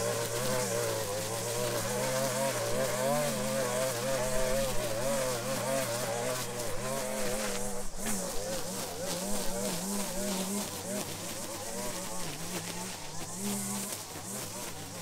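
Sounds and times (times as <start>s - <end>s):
string trimmer cutting grass: 0.0s - 15.0s.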